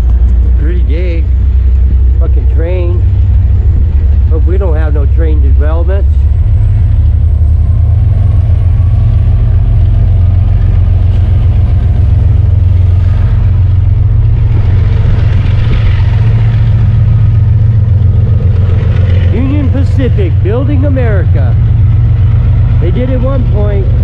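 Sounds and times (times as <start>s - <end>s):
freight train low rumble: 0.0s - 24.0s.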